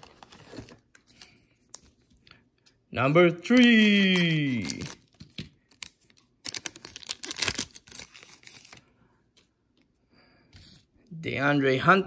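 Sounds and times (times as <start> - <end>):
plastic wrapper crinkling and tearing: 3.5 - 8.8.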